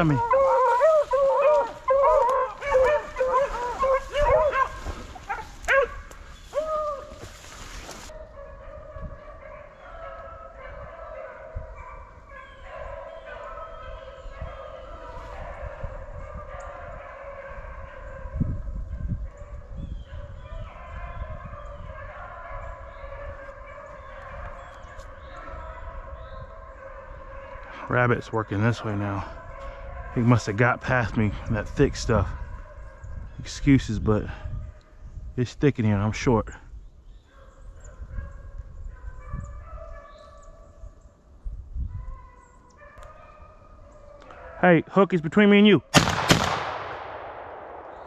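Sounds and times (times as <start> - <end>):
dogs yelping: 0.0 - 7.4, 8.1 - 18.4
footsteps in dry brush: 0.0 - 8.2
beagles baying: 0.0 - 18.4, 19.4 - 33.4.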